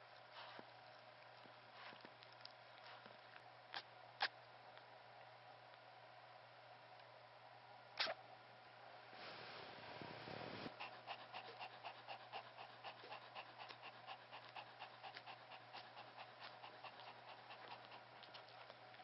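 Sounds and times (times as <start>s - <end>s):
dog panting: 10.7s - 19.0s.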